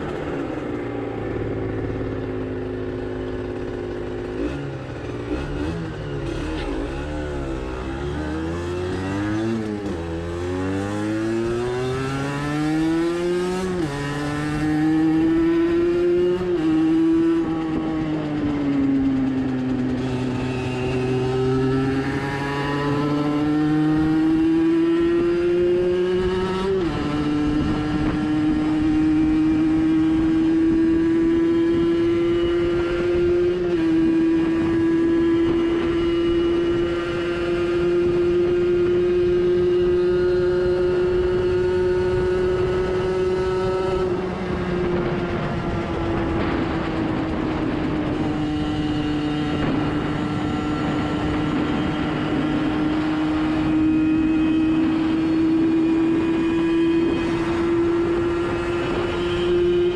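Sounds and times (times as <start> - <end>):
two-stroke engine running hard: 0.0 - 59.9
wind rushing past microphone: 5.6 - 59.9.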